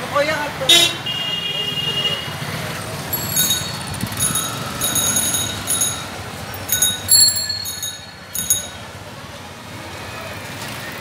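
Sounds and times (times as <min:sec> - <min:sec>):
low traffic rumble: 0:00.0 - 0:11.0
rickshaw bells ringing: 0:03.0 - 0:09.2.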